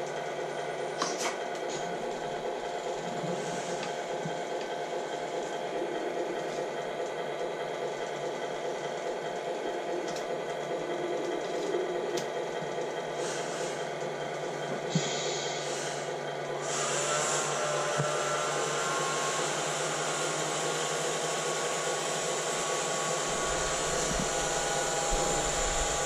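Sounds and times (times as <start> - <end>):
small electric motor whirring: 16.6 - 26.0.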